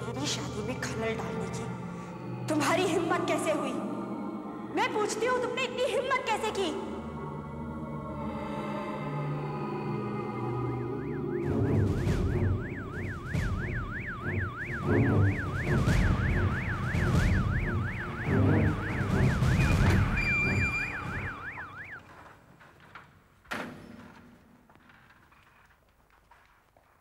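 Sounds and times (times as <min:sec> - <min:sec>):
police siren yelping: 0:10.3 - 0:22.2.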